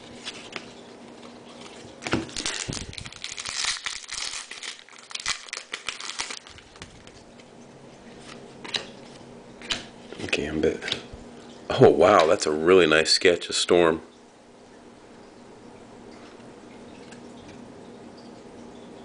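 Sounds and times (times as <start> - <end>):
card handling: 0.0 - 7.5, 8.1 - 11.0
foil wrapper crackling: 0.0 - 7.5.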